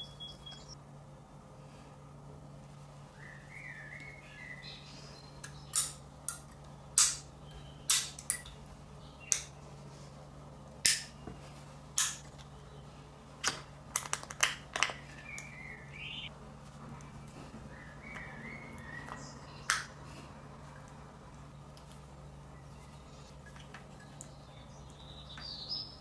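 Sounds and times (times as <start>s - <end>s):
faint high chirping: 0.0s - 0.8s, 3.1s - 6.0s, 7.4s - 7.9s, 15.0s - 16.3s
magnets clacking together: 5.4s - 7.3s, 7.9s - 8.6s, 12.0s - 12.4s.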